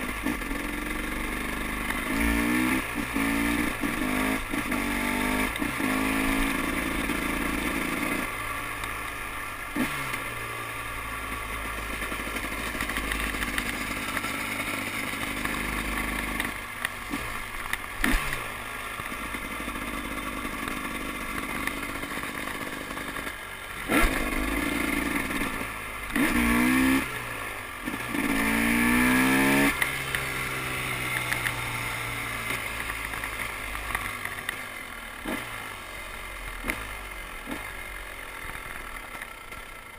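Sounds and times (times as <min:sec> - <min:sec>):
dirt bike engine revving: 0:00.0 - 0:34.1, 0:35.1 - 0:39.2.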